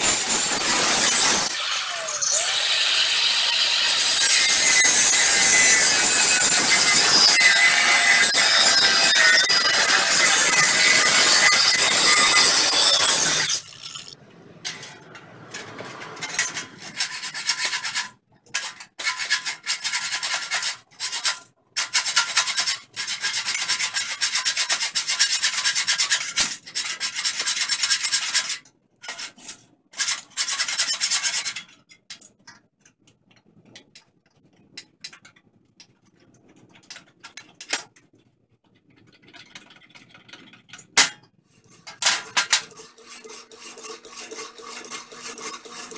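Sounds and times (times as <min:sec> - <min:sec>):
angle grinder cutting steel: 0:00.0 - 0:14.2, 0:42.3 - 0:45.9
hand file rasping on steel: 0:03.8 - 0:13.7, 0:42.5 - 0:45.9.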